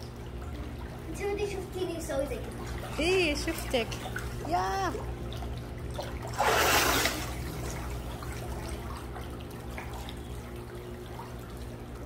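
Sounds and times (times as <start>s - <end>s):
water lapping and sloshing: 0.0s - 12.0s
child swimming splashing: 6.0s - 9.2s
loud splash: 6.3s - 7.4s.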